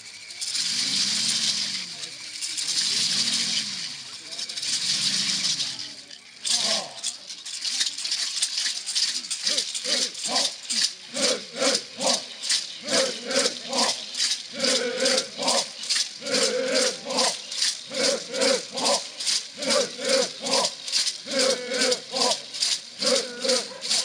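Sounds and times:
gourd rattles shaken: 0.0s - 24.0s
men chanting in low voices: 6.4s - 7.2s, 9.0s - 24.0s.

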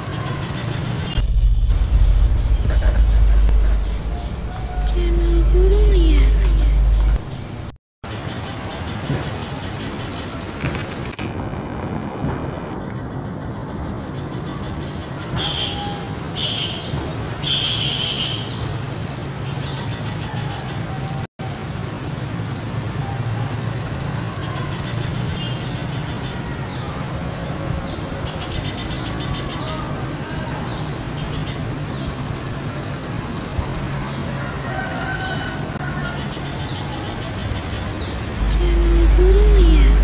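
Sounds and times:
steady low hum: 1.2s - 7.8s, 38.4s - 40.0s
bird calling high notes: 3.8s - 7.4s.

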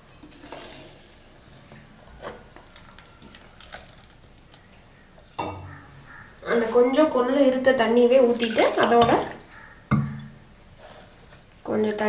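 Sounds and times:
steel jar scraping: 0.2s - 2.4s.

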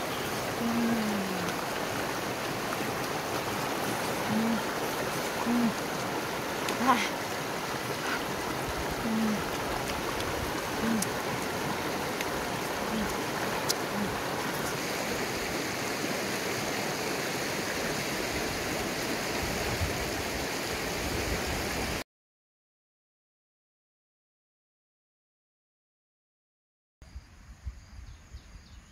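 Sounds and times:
river rushing over rocks: 0.0s - 21.9s.

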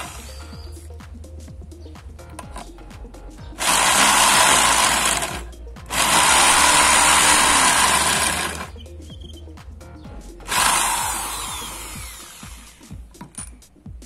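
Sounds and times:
electric drill drilling steel: 0.0s - 0.6s, 3.6s - 8.7s, 10.5s - 13.1s.

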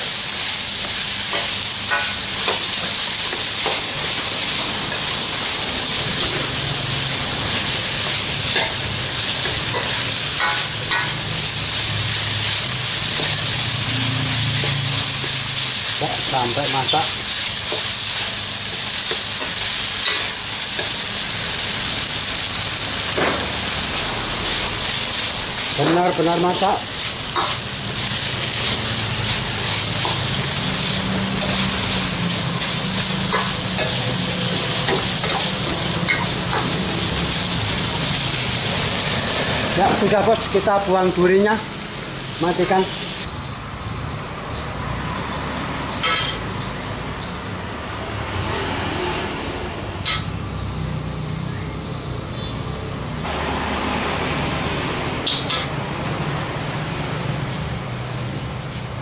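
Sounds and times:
spatula scraping wok: 0.0s - 40.7s
food sizzling in oil: 0.0s - 43.3s, 53.2s - 58.9s.

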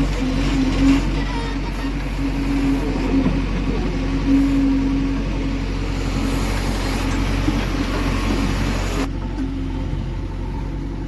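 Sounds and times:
diesel engine droning under load: 0.0s - 11.0s.

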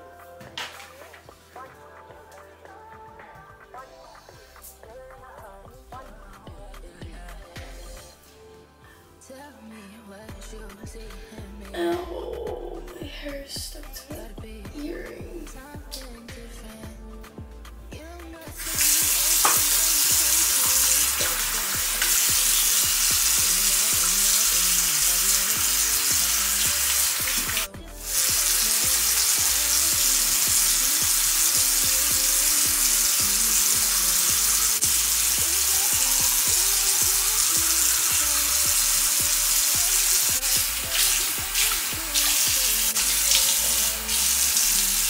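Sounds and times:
sink tap running: 18.6s - 45.0s.

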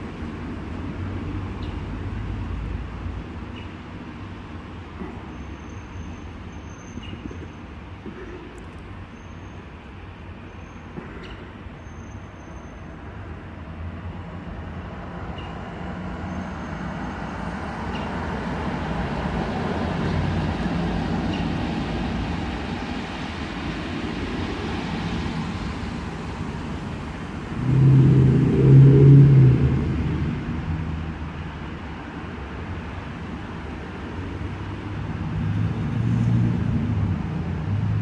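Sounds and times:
hum of passing cars: 0.0s - 38.0s
low vehicle engine starting: 27.5s - 31.1s.

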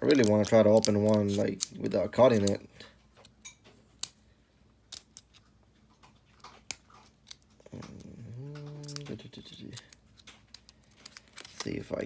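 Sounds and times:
foil wrapper crinkling: 0.0s - 2.6s, 8.7s - 12.0s
man speaking: 8.3s - 9.9s, 11.6s - 12.0s.

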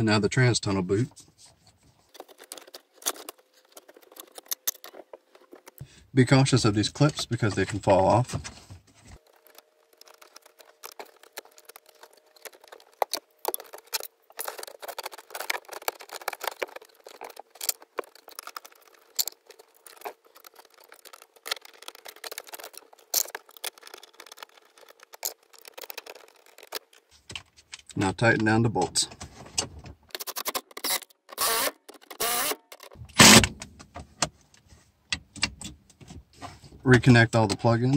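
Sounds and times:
plastic clips clicking and rattling: 2.1s - 5.8s, 9.2s - 28.0s, 30.1s - 33.6s.

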